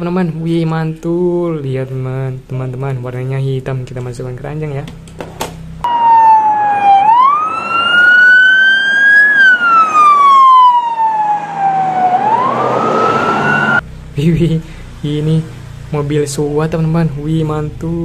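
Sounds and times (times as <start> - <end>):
emergency vehicle siren wailing: 5.8 - 13.8.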